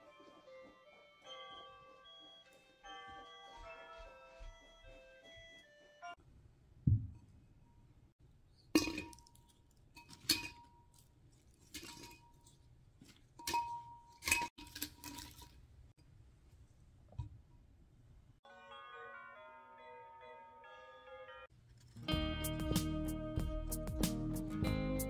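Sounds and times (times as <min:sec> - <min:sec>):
pine cones clinking in glass bowl: 0:08.8 - 0:12.6, 0:13.4 - 0:15.5.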